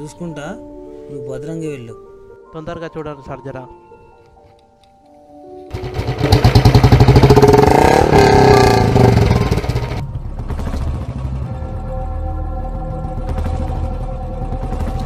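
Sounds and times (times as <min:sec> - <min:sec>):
motorcycle engine revving: 0:05.7 - 0:11.8.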